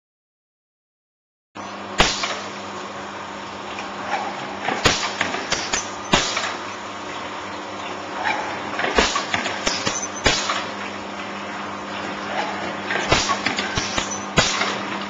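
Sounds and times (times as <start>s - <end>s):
machine running with hum: 1.6s - 15.0s
sharp mechanical knocks: 2.0s - 2.5s, 4.6s - 6.7s, 8.2s - 10.8s, 12.3s - 15.0s.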